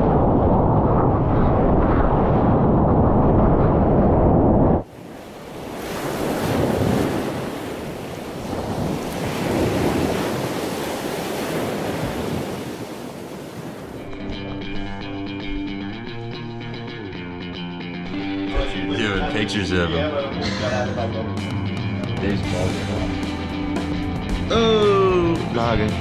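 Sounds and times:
wind and churning water rumble: 0.0s - 16.8s
waves breaking: 4.8s - 15.8s.

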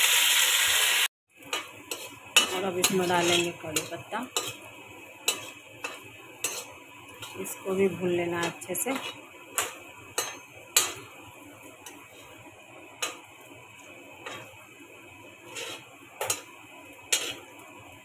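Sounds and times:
oil frying hiss: 0.0s - 18.0s
spatula scraping metal pan: 1.5s - 7.5s, 8.4s - 11.1s, 14.2s - 14.6s, 15.3s - 17.6s.

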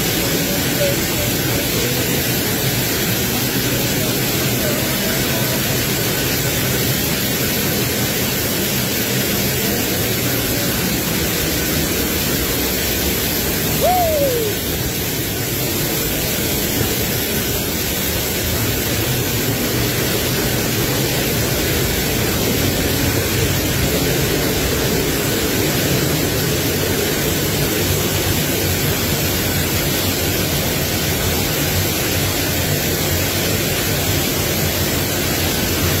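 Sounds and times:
waterfall roaring: 0.0s - 36.0s.

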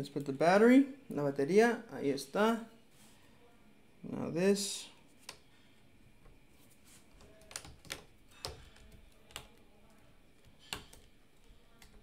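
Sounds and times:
faint sharp clicks and taps: 7.1s - 12.0s.

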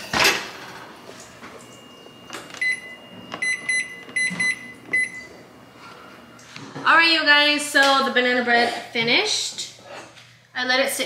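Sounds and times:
microwave keypad beeps: 1.5s - 5.4s.

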